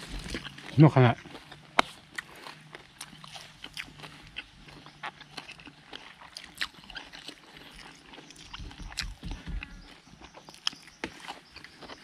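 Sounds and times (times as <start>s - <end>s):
people chewing crunchy food: 0.0s - 12.0s
low bumps: 8.5s - 10.0s.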